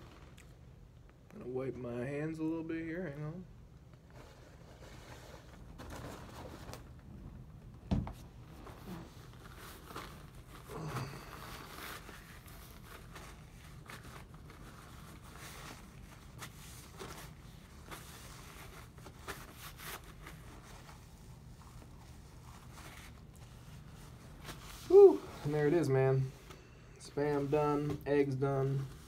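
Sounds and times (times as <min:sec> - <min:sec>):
paper napkin rustling: 0:08.2 - 0:29.0.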